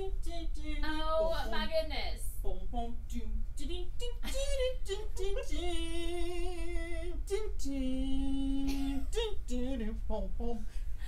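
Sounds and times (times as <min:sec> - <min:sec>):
woman singing: 0:00.8 - 0:02.0.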